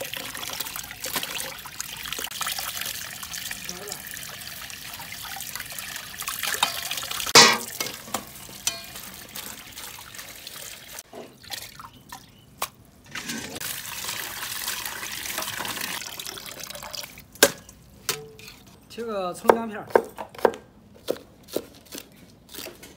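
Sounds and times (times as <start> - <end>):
water splashing into steel bowl: 0.0 - 12.3
sharp knock: 7.4 - 7.7.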